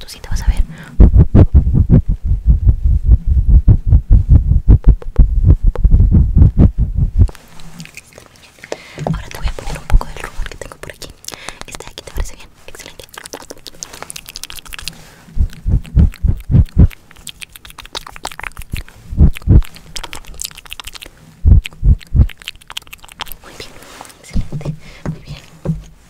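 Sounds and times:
close-miked crunching and biting: 0:07.3 - 0:24.5.

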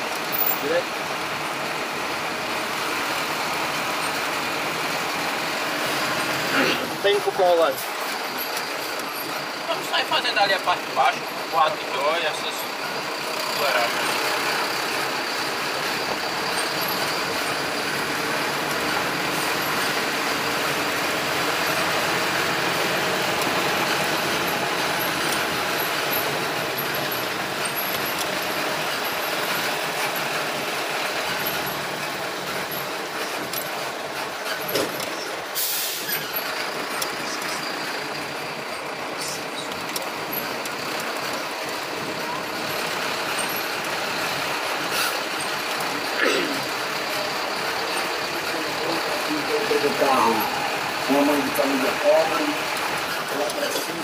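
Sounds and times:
traffic noise: 0:00.0 - 0:54.0
short sharp hiss: 0:35.6 - 0:36.1.

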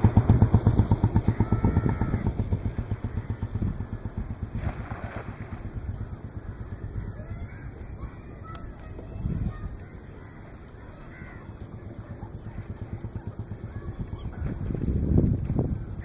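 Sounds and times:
engine throbbing passing by: 0:00.0 - 0:16.0.

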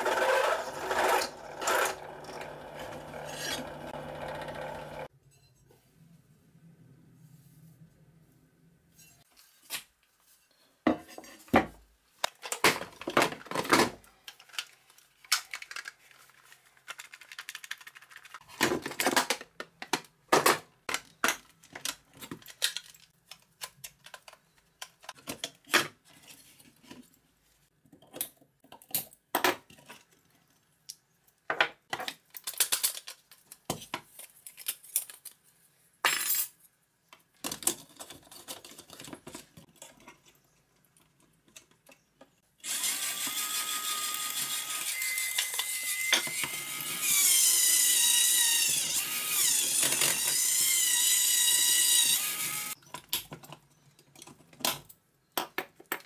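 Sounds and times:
plastic parts clattering: 0:12.2 - 0:27.0, 0:31.9 - 0:35.4, 0:37.3 - 0:42.2.

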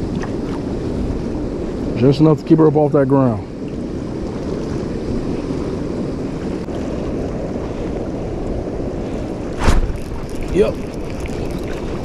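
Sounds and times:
wind buffeting microphone: 0:00.0 - 0:12.0
water rushing down concrete channel: 0:09.6 - 0:12.0.

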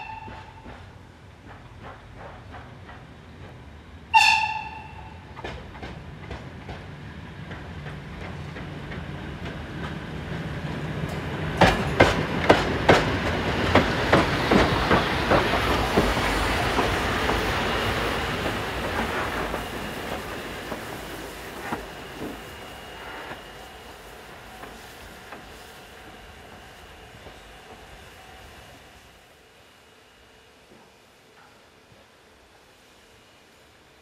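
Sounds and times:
steam locomotive whistle: 0:00.0 - 0:00.7, 0:04.1 - 0:05.3
steam locomotive passing: 0:00.0 - 0:34.0
wheels clacking over rail joints: 0:04.4 - 0:23.5.

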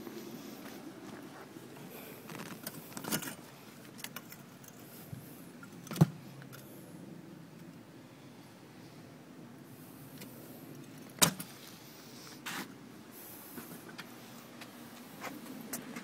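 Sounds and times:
rustles and clicks: 0:00.6 - 0:06.7
hand handling vinyl car seat: 0:02.1 - 0:03.4.

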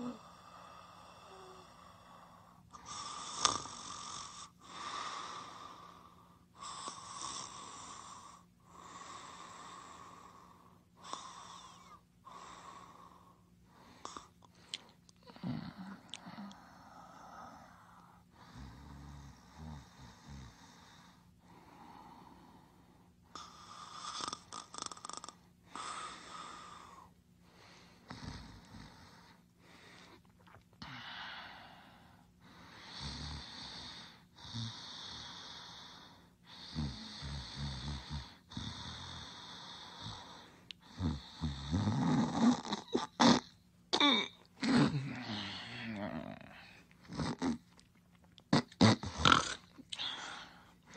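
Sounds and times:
rasping snores: 0:02.8 - 0:04.5, 0:32.8 - 0:43.5, 0:44.6 - 0:47.6, 0:48.6 - 0:49.6.

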